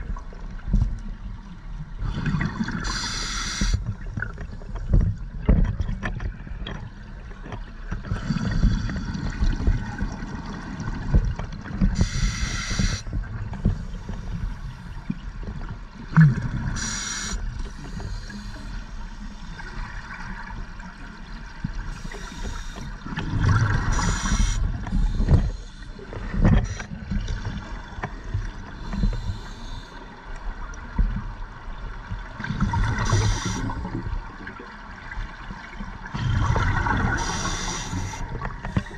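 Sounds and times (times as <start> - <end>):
low rumble of water: 0.0 - 38.9
regulator hissing inhalations: 2.8 - 3.8, 12.0 - 13.0, 16.8 - 18.8, 23.9 - 25.8, 33.0 - 33.8, 37.2 - 38.3
bubbling exhalations: 36.1 - 38.2.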